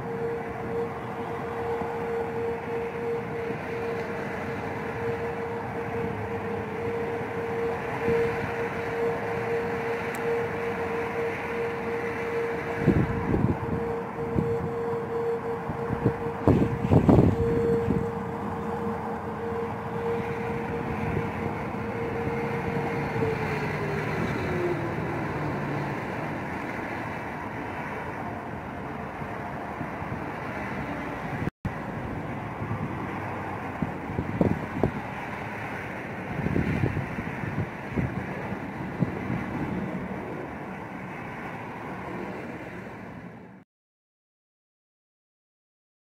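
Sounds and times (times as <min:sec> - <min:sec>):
wind rushing: 0:00.0 - 0:30.7, 0:31.3 - 0:43.2
distant warning siren: 0:00.0 - 0:43.6
low outdoor rumble: 0:00.0 - 0:43.6.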